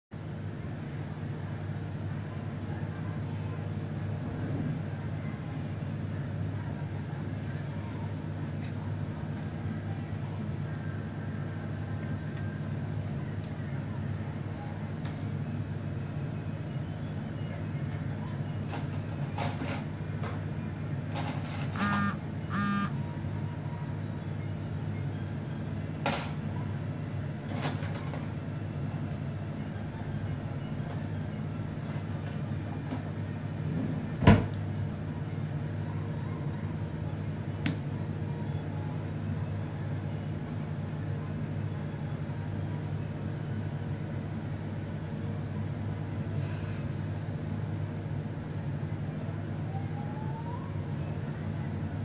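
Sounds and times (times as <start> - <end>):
steady low hum: 19.9 - 27.6.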